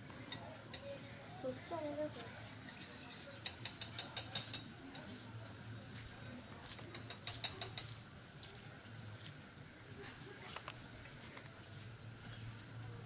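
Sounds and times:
insects clicking rapidly: 0.0 - 13.0.

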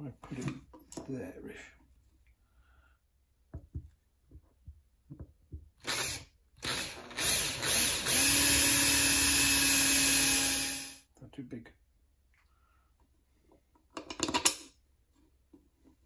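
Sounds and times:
cordless drill boring plastic pipe: 5.8 - 11.0.

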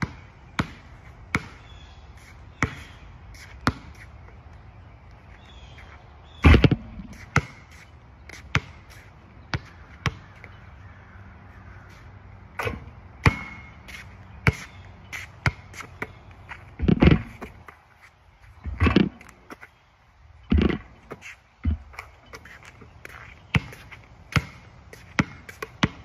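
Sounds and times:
basketball bouncing on asphalt: 0.0 - 26.0
heavy thumps: 6.4 - 7.2, 16.8 - 17.6.

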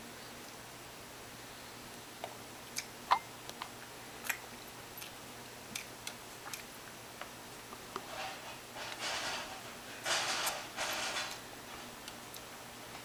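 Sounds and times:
baby chewing mouth smacks: 2.2 - 6.7.

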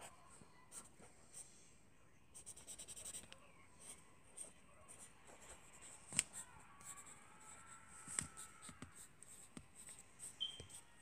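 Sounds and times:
pencil scratching on paper: 0.7 - 1.4, 2.4 - 11.0.

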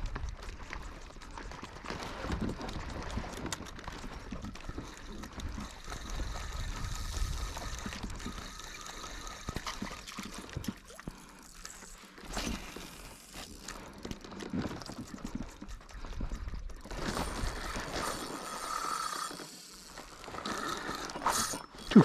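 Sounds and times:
water splashing and trickling: 1.6 - 18.8.

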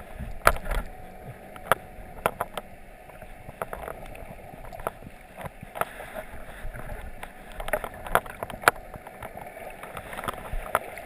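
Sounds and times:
muffled underwater water rush: 0.0 - 11.0
sharp clicks and pops: 0.2 - 0.9, 1.5 - 6.0.

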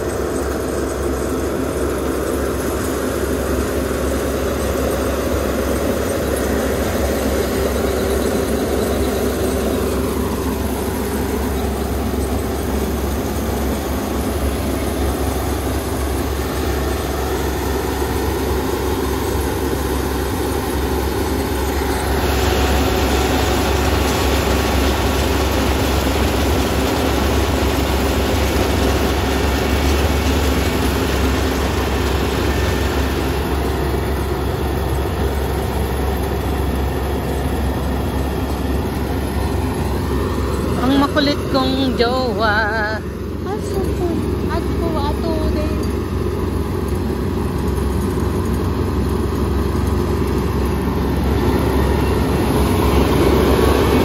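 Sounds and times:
combine harvester engine drone: 0.0 - 54.0.

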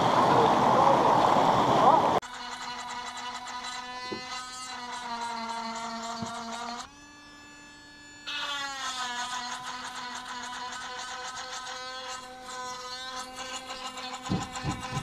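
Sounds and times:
small electric motor buzzing: 2.2 - 15.0
faint knocks: 14.2 - 15.0.

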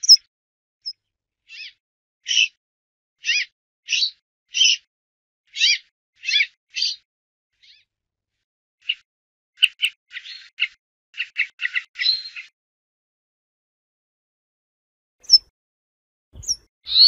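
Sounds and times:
bird calling: 16.4 - 17.0.

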